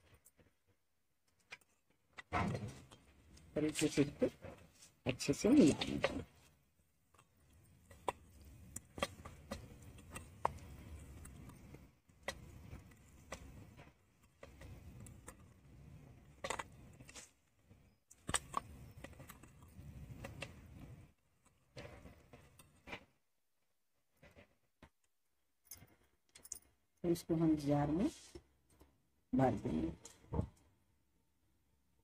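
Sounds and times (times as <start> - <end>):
hand mixing food in bowl: 3.5 - 15.6.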